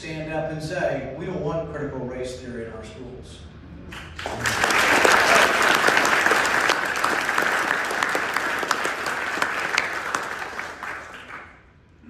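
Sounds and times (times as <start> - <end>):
audience applauding: 3.9 - 11.7.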